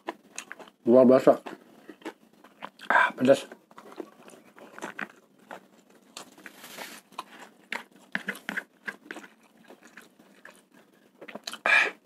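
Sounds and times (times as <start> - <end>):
chewing and crunching food: 0.0 - 12.0.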